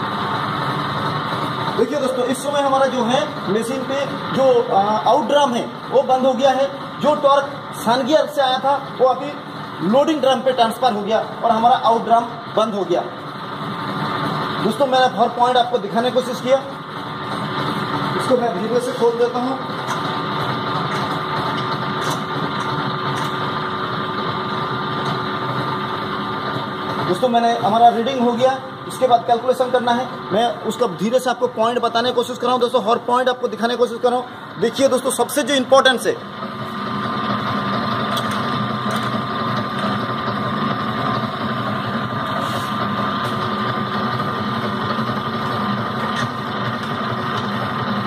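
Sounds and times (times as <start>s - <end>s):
gear rig machine hum: 0.0s - 48.0s.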